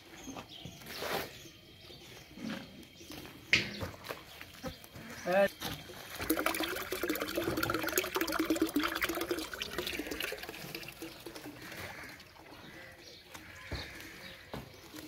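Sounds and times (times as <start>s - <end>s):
water pouring into a metal basin: 5.9s - 13.0s.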